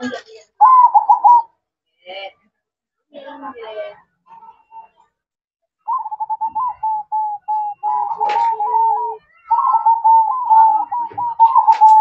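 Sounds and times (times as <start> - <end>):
dove cooing: 0.6 - 1.5, 5.9 - 12.0.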